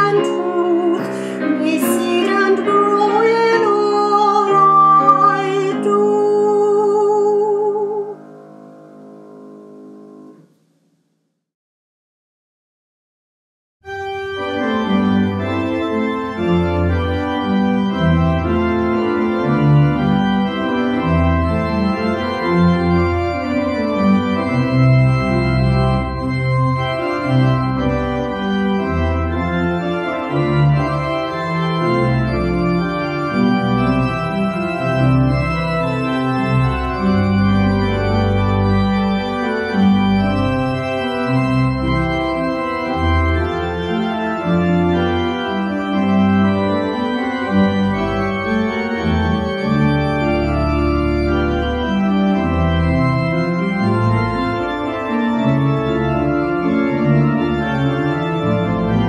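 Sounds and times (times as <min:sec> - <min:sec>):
church organ playing chords: 0:00.0 - 0:10.7, 0:13.9 - 0:59.0.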